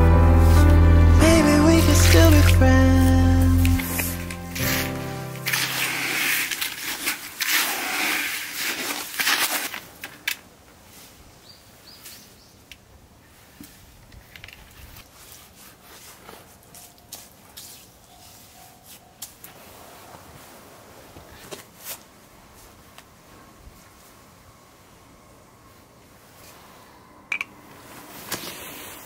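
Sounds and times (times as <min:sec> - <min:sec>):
trowel scraping mortar in bucket: 0:03.7 - 0:09.9.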